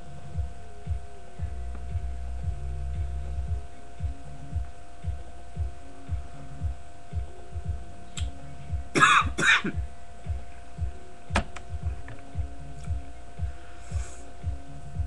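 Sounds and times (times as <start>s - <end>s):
electrical hum: 0.0s - 15.0s
person coughing: 9.0s - 9.8s.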